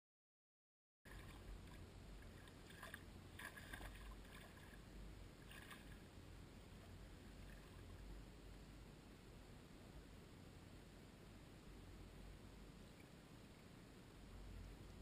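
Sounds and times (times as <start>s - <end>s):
bare feet splashing in shallow water: 1.1s - 6.1s
low steady rumble: 1.1s - 15.0s.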